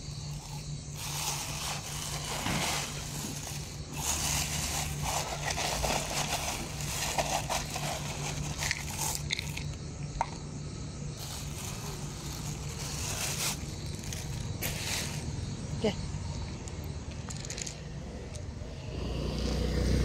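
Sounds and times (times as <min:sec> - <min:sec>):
plastic bag rustling: 0:00.0 - 0:09.8, 0:11.2 - 0:15.6
dry cat food rattling: 0:00.3 - 0:10.4.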